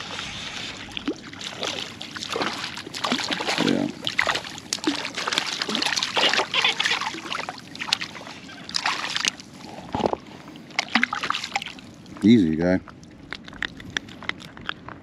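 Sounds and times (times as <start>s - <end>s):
fish splashing in water: 0.0s - 12.2s.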